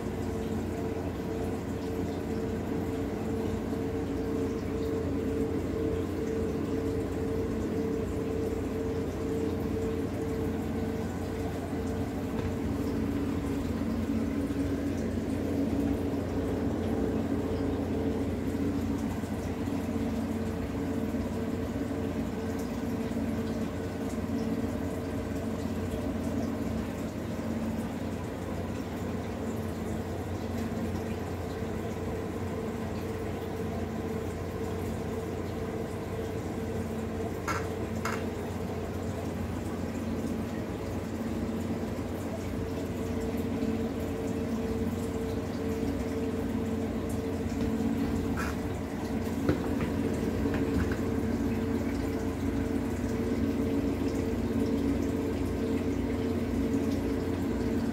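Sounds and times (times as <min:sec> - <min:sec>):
low hum: 0:00.0 - 0:29.2
aquarium bubbling water: 0:00.0 - 0:57.9.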